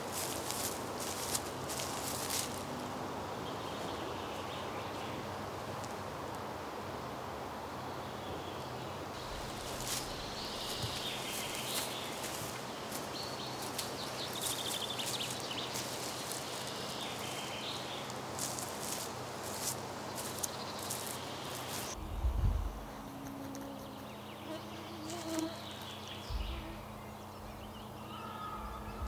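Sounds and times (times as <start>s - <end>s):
steady forest hiss: 0.0s - 29.0s
faint bird calls: 22.7s - 29.0s.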